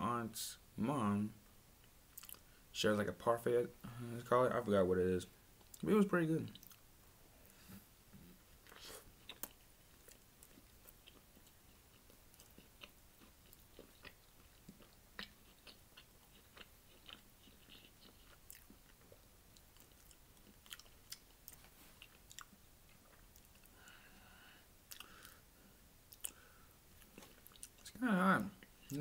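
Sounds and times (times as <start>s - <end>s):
person chewing: 2.1s - 2.5s, 6.5s - 6.8s, 8.5s - 24.0s, 24.8s - 25.4s, 26.1s - 28.0s.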